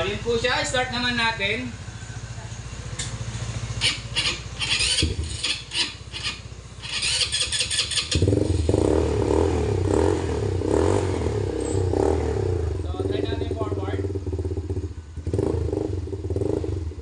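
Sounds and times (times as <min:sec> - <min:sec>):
engine idling: 0:00.0 - 0:17.0
engine cranking: 0:02.6 - 0:08.8
short high squeals: 0:03.7 - 0:08.2.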